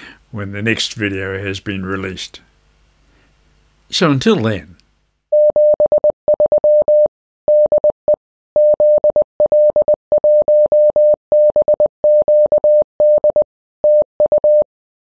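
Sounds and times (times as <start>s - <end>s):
morse code beeps: 5.3s - 14.7s.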